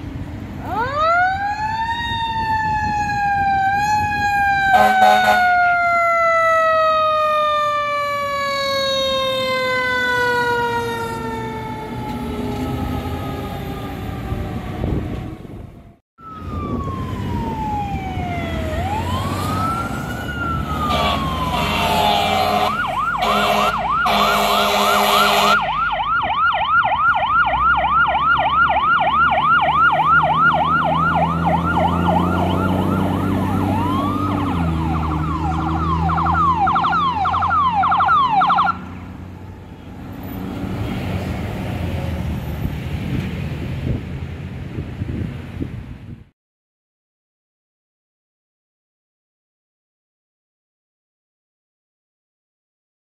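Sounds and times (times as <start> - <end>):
electronic siren wailing and yelping: 0.6 - 38.9
air horn blasts: 4.7 - 5.5, 20.8 - 25.7.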